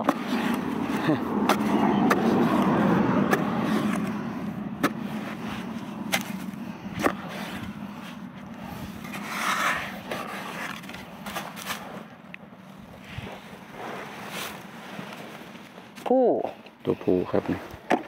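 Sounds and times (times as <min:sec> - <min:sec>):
scraping and rustling of soil: 0:00.0 - 0:16.2
low steady hum: 0:00.0 - 0:17.4
spade striking hard soil: 0:04.8 - 0:07.7.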